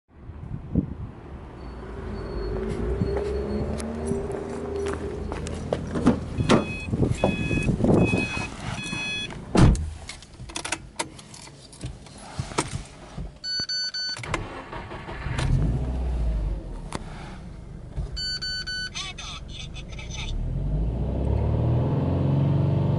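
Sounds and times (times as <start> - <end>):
dashboard chime beeping: 6.4 - 9.3, 13.4 - 14.2, 18.2 - 19.6
car door thumping shut: 9.5 - 9.9
car engine starting and idling: 14.0 - 22.9.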